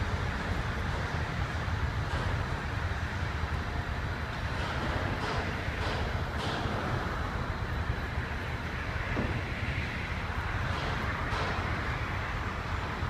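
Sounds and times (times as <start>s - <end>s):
construction machinery engine rumble: 0.0s - 13.0s.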